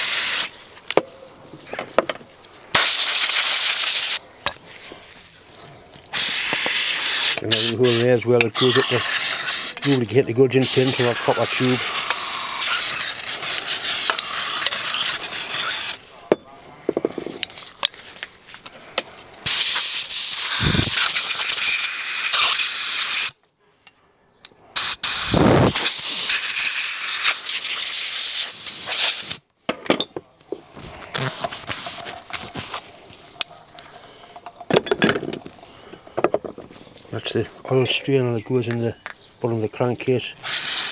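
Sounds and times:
aerosol can spraying: 0.0 - 0.5, 2.8 - 4.2, 6.1 - 16.0, 19.5 - 23.4, 24.8 - 29.4, 40.4 - 40.9
compressed air blasts: 0.0 - 0.6, 2.7 - 4.2, 6.1 - 16.0, 19.4 - 23.4, 24.8 - 29.4, 40.4 - 40.9.

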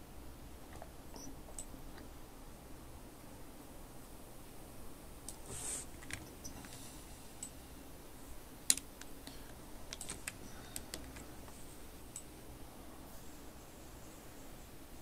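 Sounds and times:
keyboard and mouse clicking: 8.7 - 9.2, 9.9 - 12.3.

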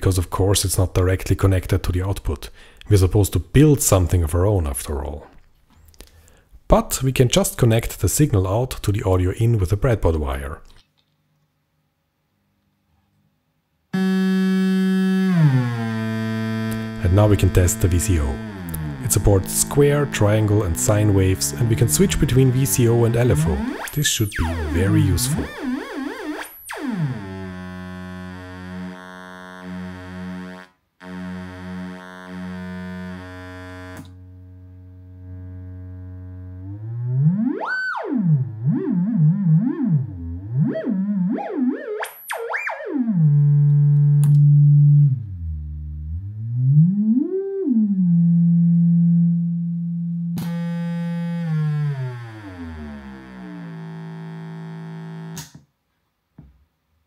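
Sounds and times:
buzzy synth tone sweeping: 14.0 - 55.4.

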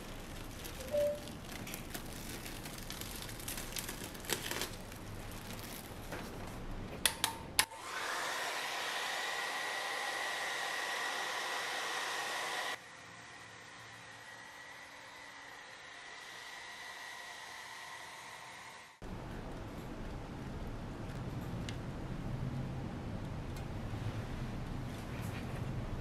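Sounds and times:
hair dryer blowing: 7.6 - 19.0.

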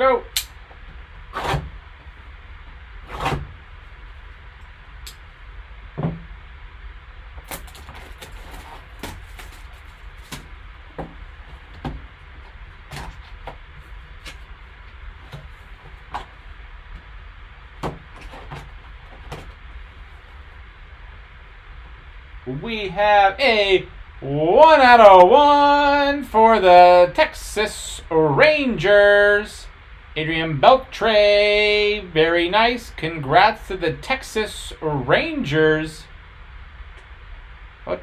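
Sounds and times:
plastic wrap crinkling: 7.5 - 10.6.

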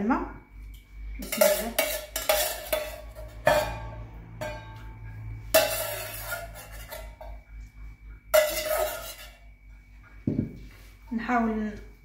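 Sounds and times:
metal skimmer clanking on pot: 1.2 - 7.4, 8.3 - 9.5.

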